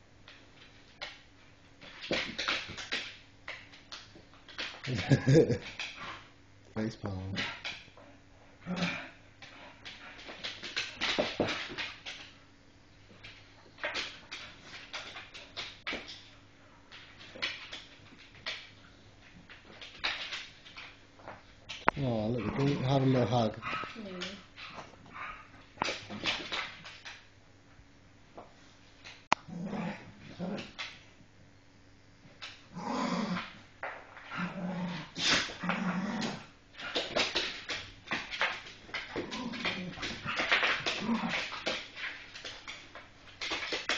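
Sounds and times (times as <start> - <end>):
dogs growling: 8.6 - 10.3, 22.0 - 26.2, 29.4 - 30.8, 32.7 - 33.6, 34.2 - 37.3, 38.9 - 41.8
dogs scuffling: 33.8 - 43.9.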